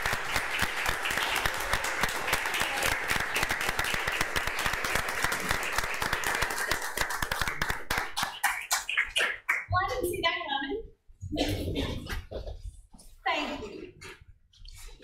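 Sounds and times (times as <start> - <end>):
people applauding: 0.0 - 9.7.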